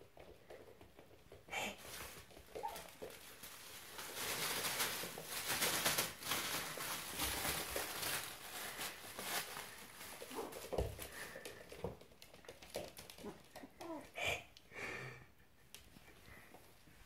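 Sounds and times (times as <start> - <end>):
paws pattering on wooden floor: 0.0 - 14.2
plastic bag rustling: 1.7 - 11.9.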